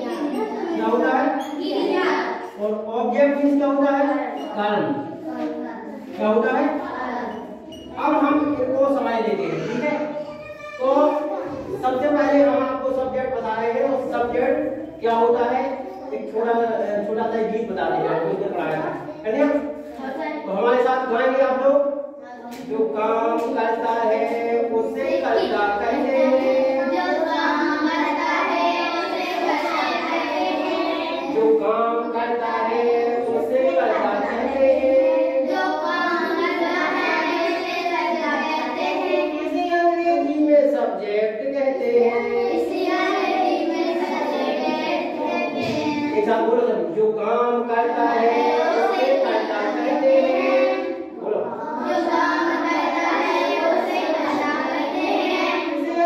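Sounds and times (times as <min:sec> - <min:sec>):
children singing: 0:00.0 - 0:02.6, 0:23.0 - 0:40.2, 0:41.8 - 0:46.5, 0:47.5 - 0:56.0.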